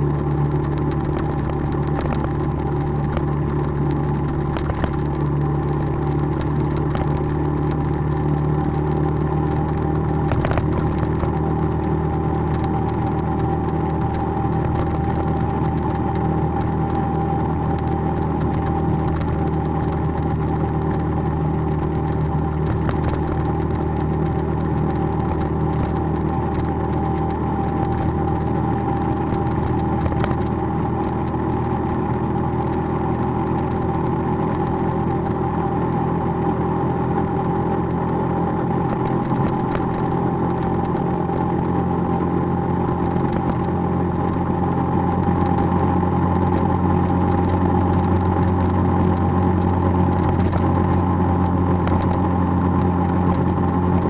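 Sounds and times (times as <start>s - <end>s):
motorbike engine droning: 0.0s - 54.0s
road and wind noise: 0.0s - 54.0s.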